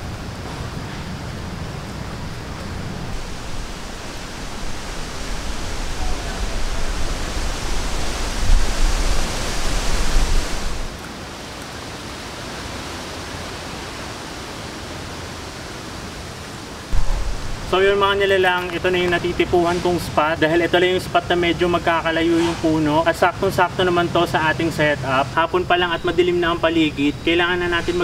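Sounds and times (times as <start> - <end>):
wind buffeting microphone: 0.0 - 10.9, 16.9 - 19.6
wind rushing through trees: 0.0 - 28.0.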